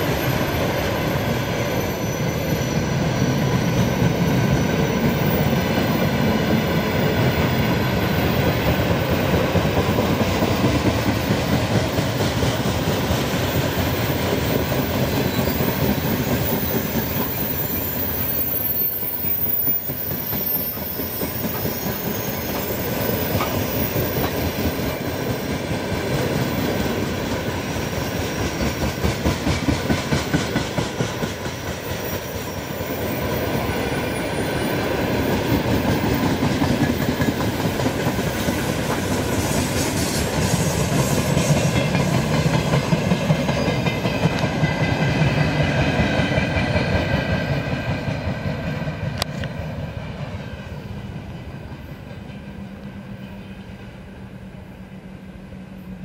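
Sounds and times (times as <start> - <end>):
high wheel squeal: 0.0 - 5.9, 13.3 - 24.7
train wheels clattering over rails: 0.0 - 53.9.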